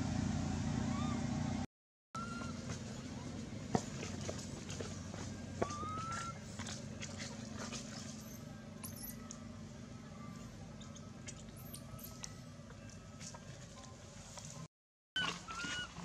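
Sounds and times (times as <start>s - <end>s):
thin high squeaks: 11.5s - 12.4s.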